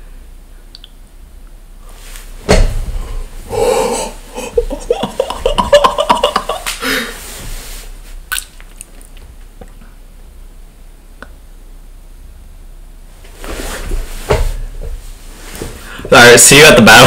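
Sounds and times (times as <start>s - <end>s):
young man laughing: 3.6s - 7.2s.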